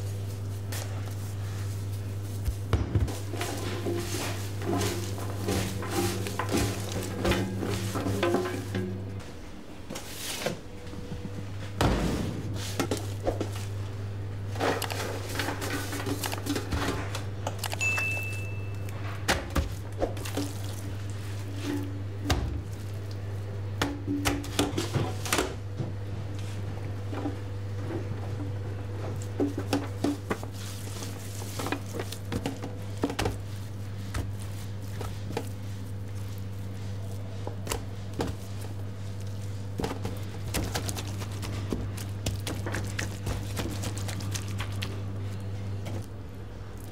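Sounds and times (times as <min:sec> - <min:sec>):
meat thunks and squishes: 0:00.0 - 0:08.7, 0:18.8 - 0:21.6, 0:29.2 - 0:46.9
steady low hum: 0:00.0 - 0:46.9.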